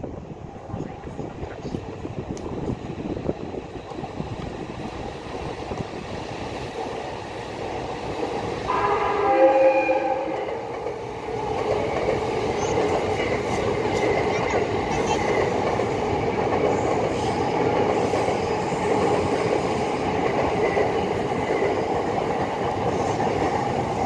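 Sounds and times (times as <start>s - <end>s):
train wheels rumbling and clattering: 0.0s - 24.0s
train horn: 8.7s - 10.7s.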